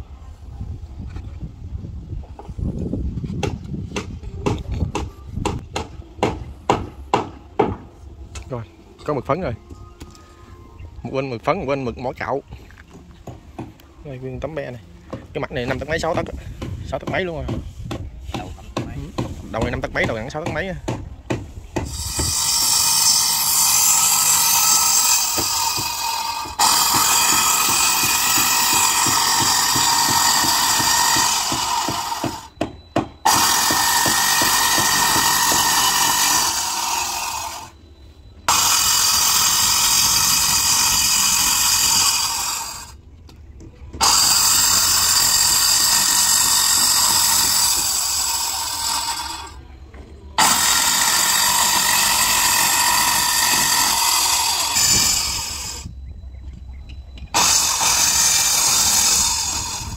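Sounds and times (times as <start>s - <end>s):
power tool motor whining: 21.8s - 32.6s, 33.2s - 37.8s, 38.5s - 43.0s, 44.0s - 49.6s, 50.4s - 55.9s, 57.3s - 59.9s.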